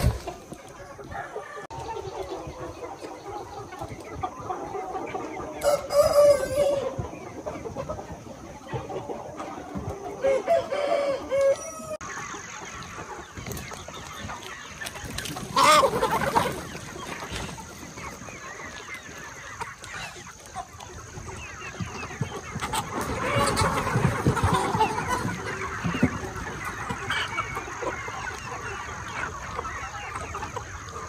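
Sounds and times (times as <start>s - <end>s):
chickens clucking and calling: 0.0s - 31.0s
rooster crow: 5.6s - 6.9s, 10.2s - 12.0s.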